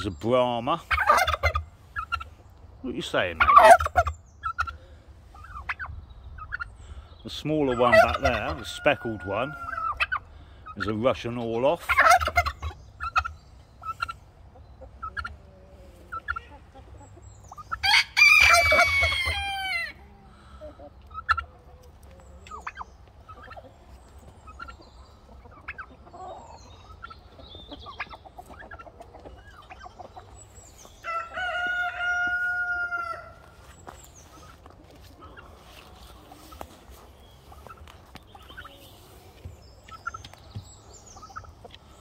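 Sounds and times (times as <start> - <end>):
hens clucking softly: 0.6 - 6.8, 7.4 - 42.0
rooster crowing: 17.8 - 20.0, 31.0 - 33.5.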